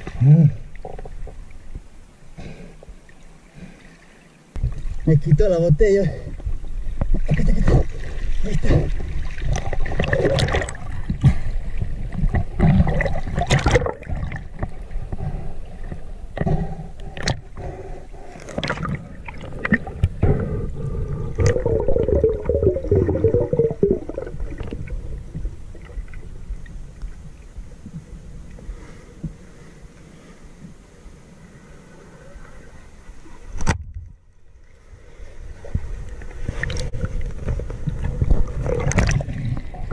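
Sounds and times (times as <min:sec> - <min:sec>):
underwater clicks: 0:21.4 - 0:24.8, 0:36.5 - 0:39.3
bubbling warbling: 0:21.4 - 0:24.9.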